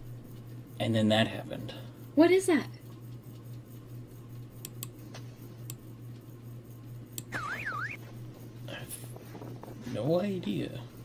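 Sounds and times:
low steady hum: 0:00.0 - 0:11.0
electronic warble: 0:07.3 - 0:08.0.

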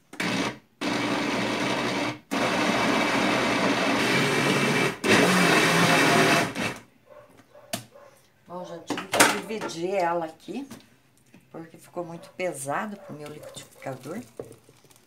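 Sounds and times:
blender pureeing: 0:00.1 - 0:06.8.

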